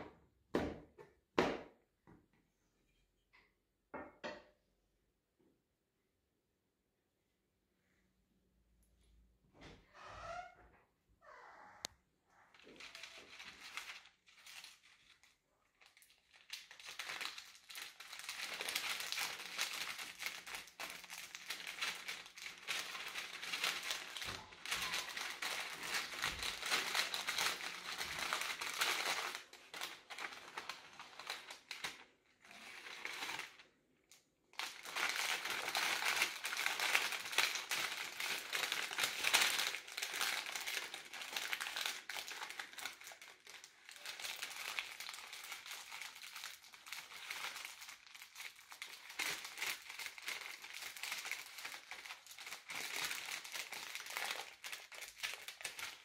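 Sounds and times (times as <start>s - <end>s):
paper crinkling and rustling: 12.5s - 33.8s, 34.6s - 56.0s.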